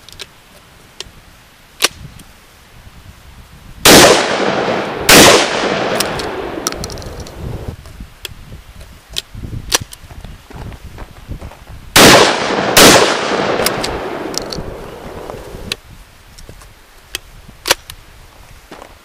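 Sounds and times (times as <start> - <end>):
shotgun blasts echoing: 3.8 - 6.7, 12.0 - 15.2
metallic clicks of gun action: 6.0 - 7.4, 13.6 - 14.7.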